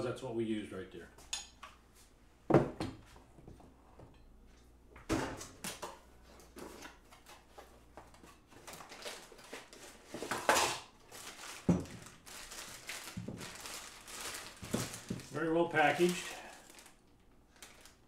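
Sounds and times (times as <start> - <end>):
box packaging rustling: 8.5 - 18.0
plastic bag crinkling: 8.6 - 10.1, 10.8 - 18.0.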